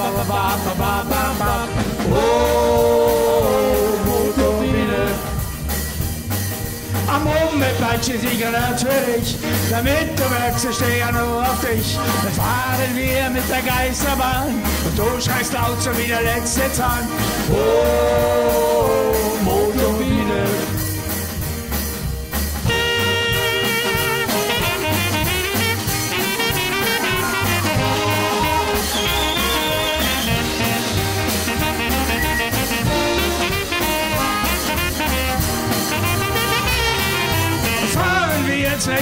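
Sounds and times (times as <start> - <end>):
bass and drum beat: 0.0 - 39.0
saxophone horn section: 16.8 - 20.8, 22.6 - 38.6.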